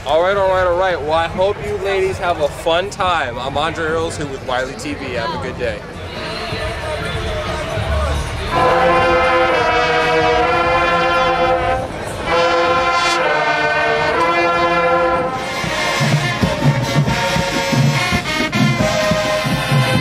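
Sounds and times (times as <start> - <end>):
brass section holding chords: 6.2 - 20.0.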